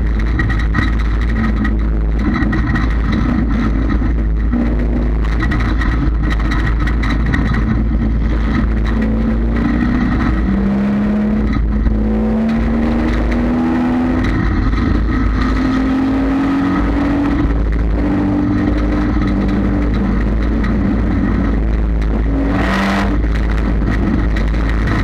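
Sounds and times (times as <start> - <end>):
heavy low rumble: 0.0 - 25.0
race car engine revving: 0.0 - 25.0.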